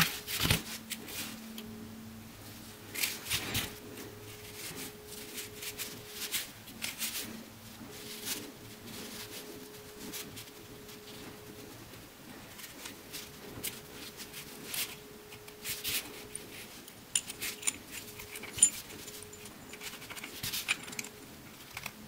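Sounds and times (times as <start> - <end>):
faint steady hum: 0.0 - 22.0
light clicks of metal parts: 16.3 - 22.0.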